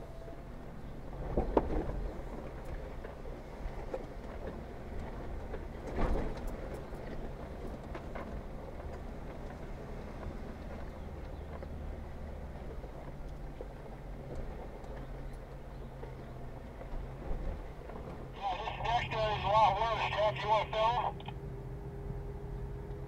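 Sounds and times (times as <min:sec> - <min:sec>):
low engine drone: 0:18.3 - 0:23.0.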